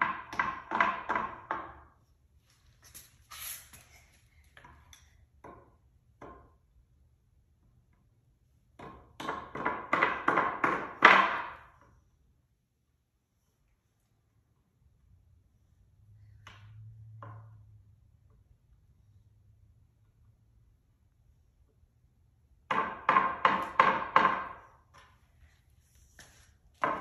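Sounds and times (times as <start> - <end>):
hammer striking wood: 0.0 - 1.8, 8.8 - 11.7, 22.7 - 24.6, 26.8 - 27.0.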